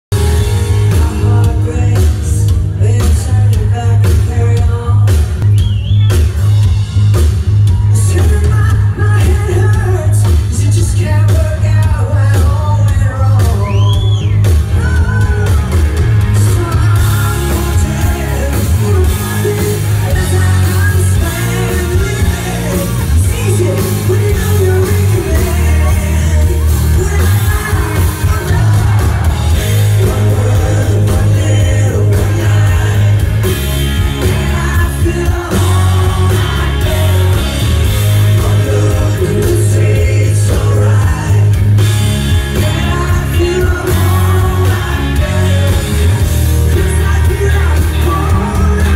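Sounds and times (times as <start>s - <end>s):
heavy booming bass: 0.0s - 48.9s
rock band playing live: 0.0s - 48.9s
woman singing lead vocal: 8.0s - 41.7s, 42.6s - 46.1s.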